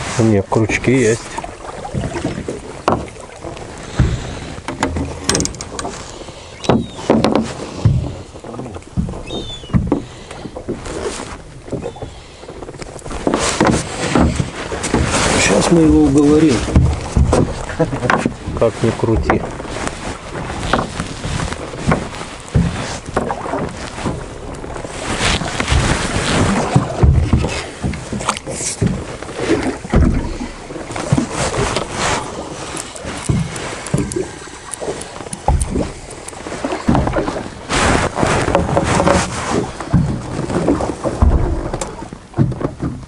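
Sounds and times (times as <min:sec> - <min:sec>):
water lapping against boat hull: 0:00.0 - 0:43.0
wind on microphone: 0:00.0 - 0:43.0
knocks and clicks: 0:04.0 - 0:05.9, 0:32.7 - 0:37.4
low thumps: 0:13.6 - 0:43.0.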